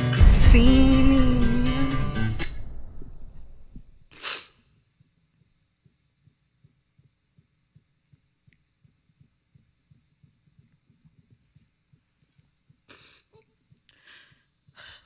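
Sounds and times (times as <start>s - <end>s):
faint low thuds: 0.2s - 4.0s
woman sobbing breath: 12.9s - 15.0s.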